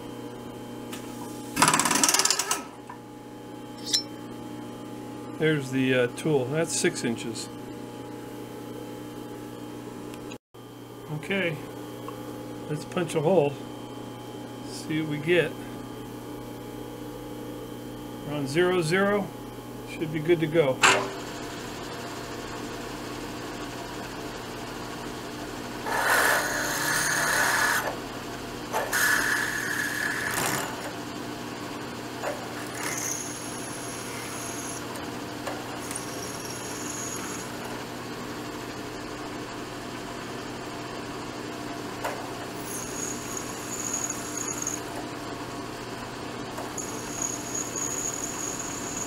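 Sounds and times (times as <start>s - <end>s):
drill bit squealing: 25.9s - 27.9s, 28.9s - 30.7s, 32.6s - 34.9s, 35.8s - 37.6s, 42.6s - 44.9s, 46.7s - 49.0s
milling machine spindle running: 32.4s - 35.0s, 35.7s - 38.1s, 42.4s - 45.2s, 46.5s - 49.0s
grinding cutting noise: 32.5s - 34.9s, 35.8s - 37.8s, 42.6s - 44.9s, 46.6s - 49.0s.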